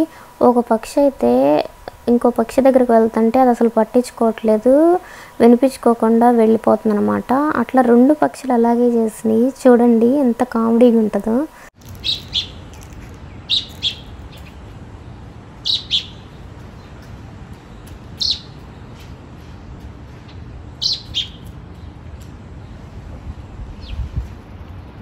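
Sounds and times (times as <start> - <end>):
low background noise: 0.0 - 25.0
robins chirping: 11.9 - 14.7, 15.6 - 18.6, 20.2 - 22.0.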